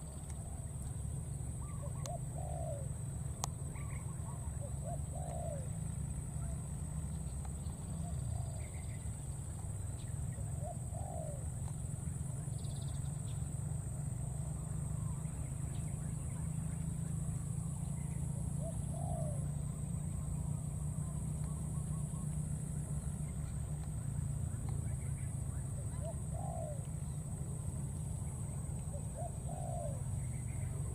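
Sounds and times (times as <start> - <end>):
soft cooing calls: 1.6 - 3.0, 3.7 - 6.6, 10.6 - 11.6, 18.4 - 23.6, 25.6 - 27.3, 28.1 - 30.9.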